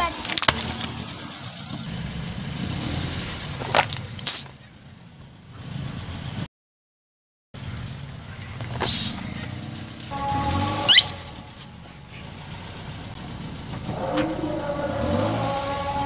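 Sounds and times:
car engine rumble: 0.0 - 6.5, 7.6 - 16.0
short rising squeak: 10.2 - 11.7.

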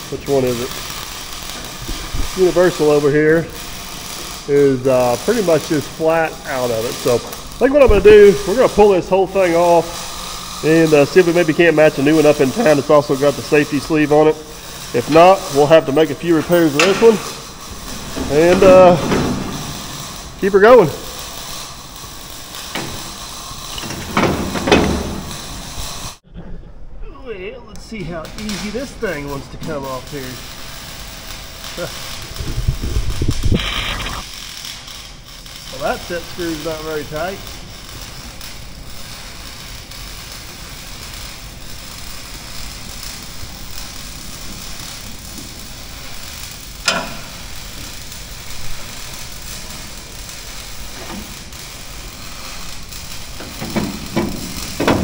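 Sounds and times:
steady background hiss: 0.0 - 55.0
ratchet wrench clicks: 46.8 - 47.4.

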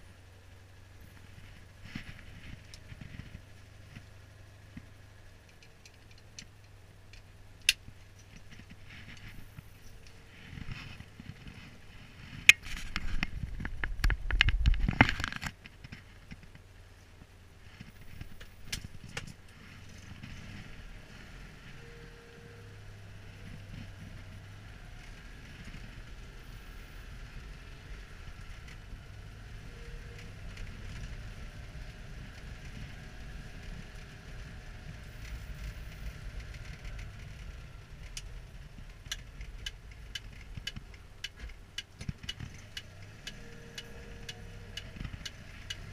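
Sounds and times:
car engine running quietly: 16.0 - 45.9.

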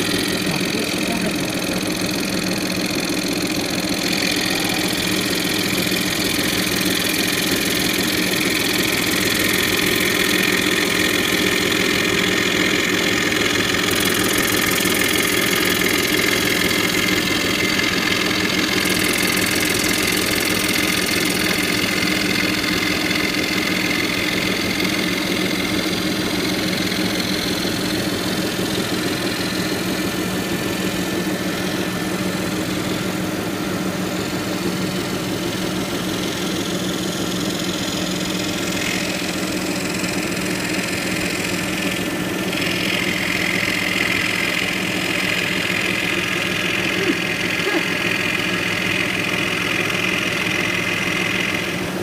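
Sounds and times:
jig saw cutting wood: 0.0 - 52.0.

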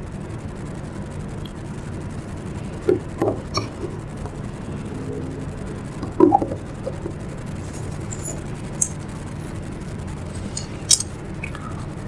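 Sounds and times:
low background hum: 0.0 - 12.0
plastic device knocking and rubbing: 2.8 - 4.4, 6.0 - 7.2.

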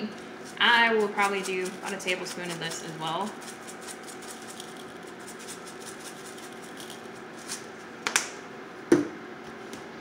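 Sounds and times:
shaker scraping on counter: 0.0 - 7.8
seasoning shaker rattling: 0.4 - 7.8.

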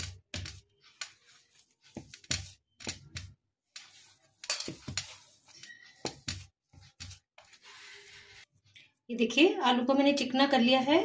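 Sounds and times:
potato squishing on steel plate: 0.0 - 8.4.

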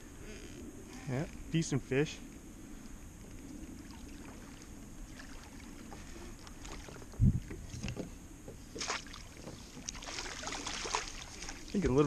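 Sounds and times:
fish splashing at surface: 8.8 - 11.7.

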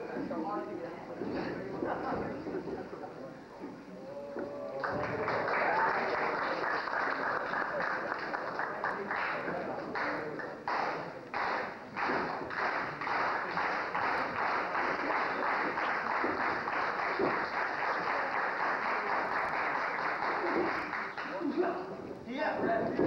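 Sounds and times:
crowd clapping in unison: 4.7 - 21.8.

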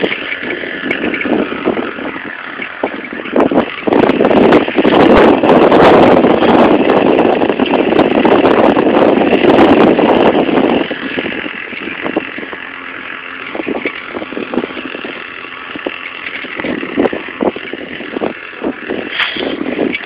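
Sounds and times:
small engine running: 0.0 - 20.0.

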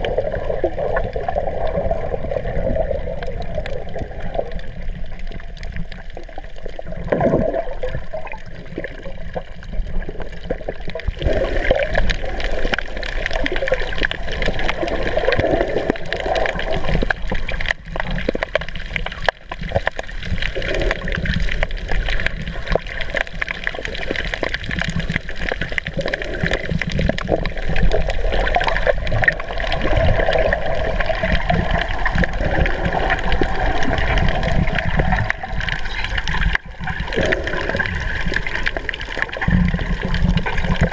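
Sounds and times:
muffled underwater gurgling: 0.0 - 40.9
small crackles: 0.0 - 40.9.

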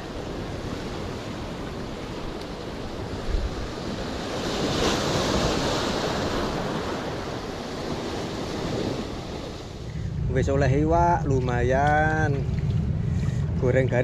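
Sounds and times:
surf breaking on rocks: 0.0 - 9.8
wind buffeting microphone: 0.0 - 14.0.

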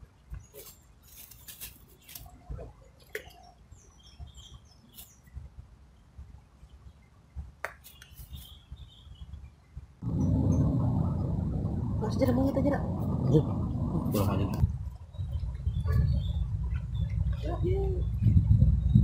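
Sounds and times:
footsteps on dry leaves: 0.6 - 2.3
birds chirping: 1.9 - 19.0.

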